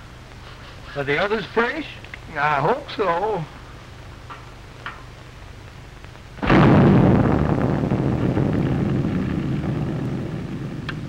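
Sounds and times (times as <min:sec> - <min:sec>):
long rushing noise: 0:06.3 - 0:11.0
explosion blast: 0:06.4 - 0:11.0.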